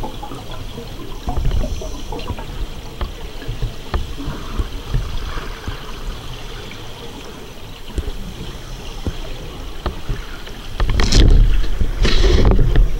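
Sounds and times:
underwater hiss: 0:01.1 - 0:02.9.

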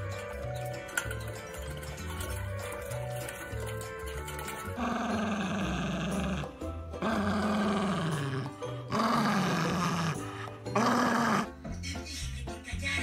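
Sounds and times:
background music: 0:00.0 - 0:13.0
dog growling: 0:04.7 - 0:11.6.

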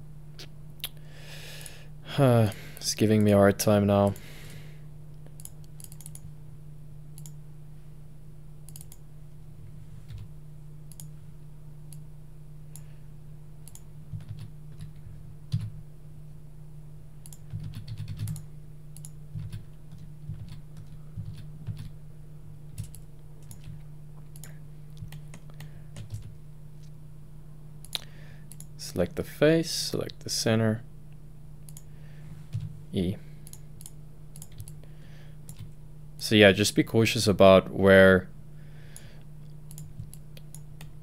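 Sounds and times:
steady low hum: 0:00.0 - 0:41.0
keyboard and mouse clicking: 0:05.4 - 0:06.3, 0:07.2 - 0:07.4, 0:08.7 - 0:09.0, 0:10.9 - 0:11.1, 0:13.6 - 0:14.9, 0:17.2 - 0:21.9, 0:22.7 - 0:26.3, 0:27.8 - 0:28.7, 0:33.4 - 0:34.8, 0:39.7 - 0:41.0.

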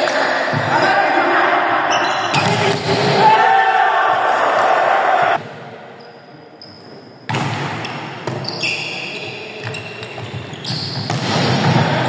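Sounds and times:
shoes squeaking on wooden floor: 0:08.4 - 0:11.1
volleyball hits: 0:10.8 - 0:12.0.

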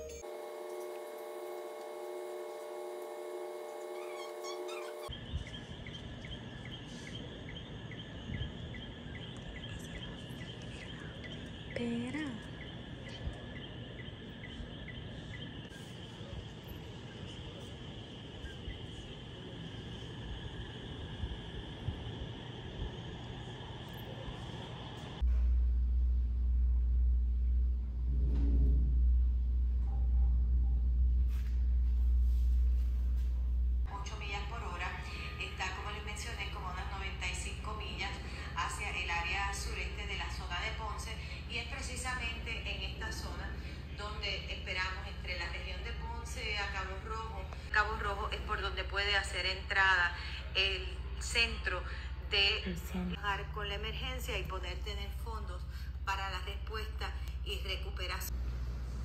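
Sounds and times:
steady low rumble: 0:05.0 - 0:59.0
wind buffeting microphone: 0:18.1 - 0:25.3.

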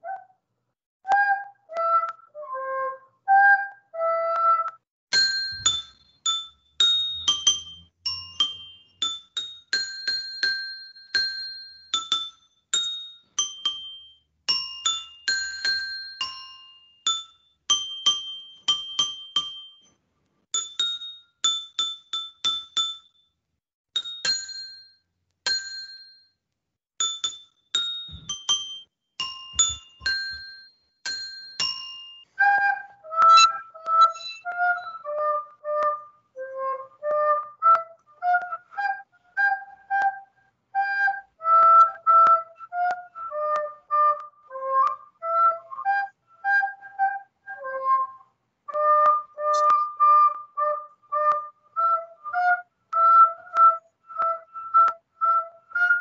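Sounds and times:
soprano recorder notes: 0:00.0 - 0:00.4, 0:01.0 - 0:04.8, 0:32.3 - 0:56.0
bell-toned melody: 0:05.1 - 0:19.9, 0:27.0 - 0:32.3.

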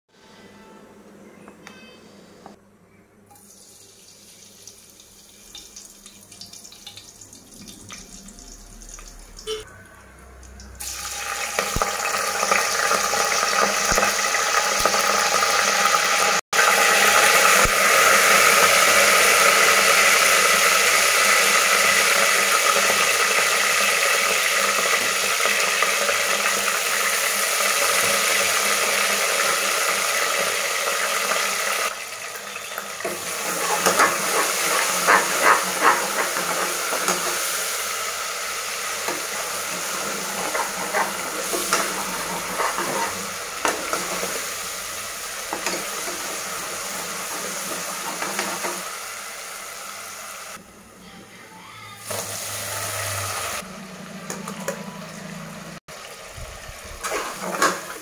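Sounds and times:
spices sizzling in hot oil: 0:03.3 - 0:09.7, 0:10.3 - 0:50.6, 0:52.0 - 0:53.6, 0:55.9 - 0:58.0.

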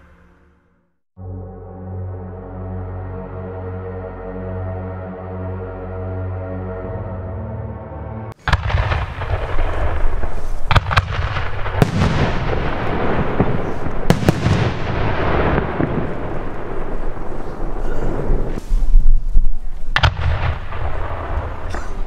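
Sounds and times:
rumble and echo: 0:06.2 - 0:22.0
firework shells bursting: 0:08.4 - 0:19.0.

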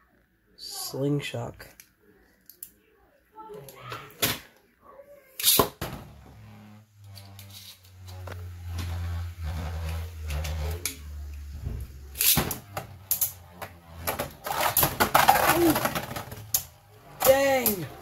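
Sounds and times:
spinning top humming: 0:06.3 - 0:18.0
spinning tops clacking and scraping: 0:07.0 - 0:11.5, 0:12.1 - 0:18.0.

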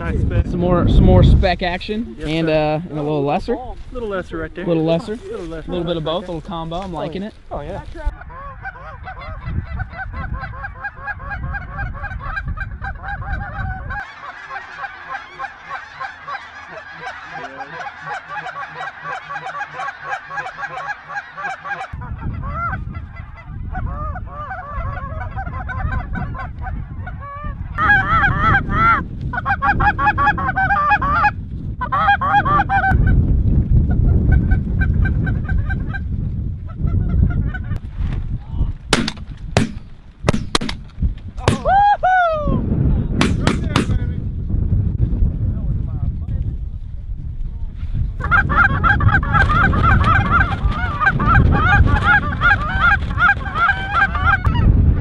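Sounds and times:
geese honking overhead: 0:08.0 - 0:33.2, 0:48.2 - 0:54.8.

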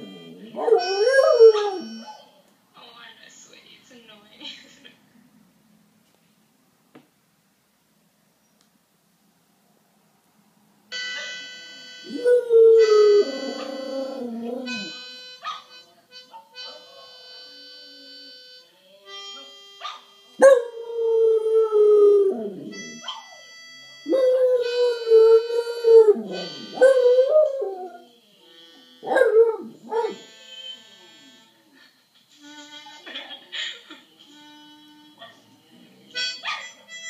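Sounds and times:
harmonica music: 0:00.0 - 0:02.4, 0:10.9 - 0:37.0.

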